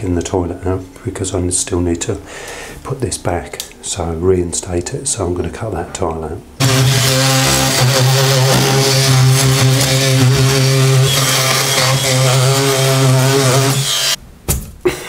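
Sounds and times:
multi-tool cutting tile: 6.6 - 14.2.

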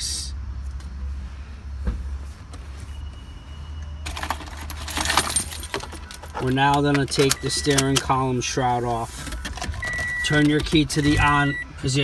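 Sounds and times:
keys jangling: 4.1 - 6.4.

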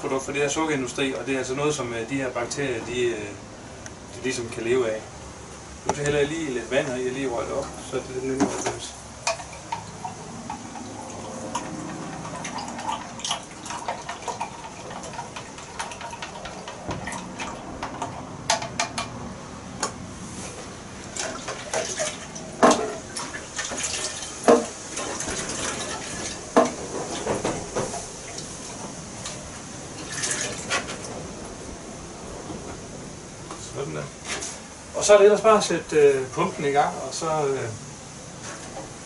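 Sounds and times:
liquid splashing and dripping: 9.2 - 18.1, 30.0 - 30.7.

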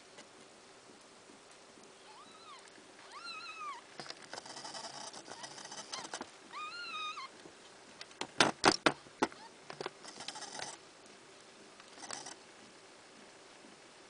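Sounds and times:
soft rustling: 0.0 - 8.2
kitten mewing: 5.2 - 7.4.

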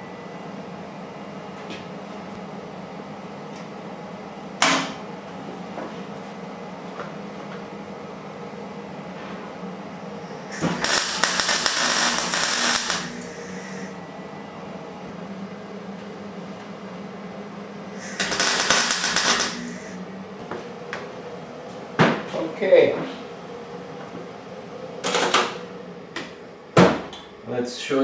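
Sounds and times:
steady low hum: 0.0 - 28.0
welding arc crackling: 10.6 - 13.9, 18.0 - 20.0.

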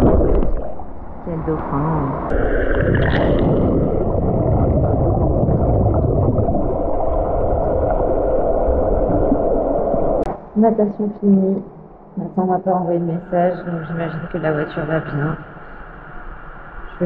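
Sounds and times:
underwater rushing and bubbling: 0.0 - 10.3.

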